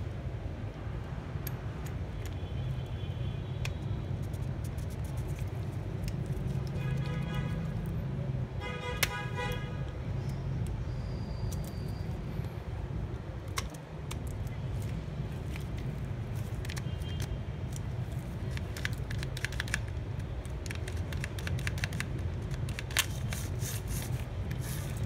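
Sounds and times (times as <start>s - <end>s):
small plastic clicks and rattles: 18.5s - 23.4s.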